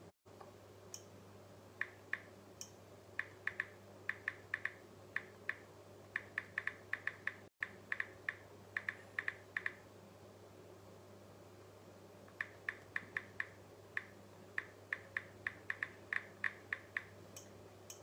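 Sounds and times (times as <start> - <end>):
low steady hum: 0.0 - 18.0
smartphone keyboard clicks: 6.2 - 9.8.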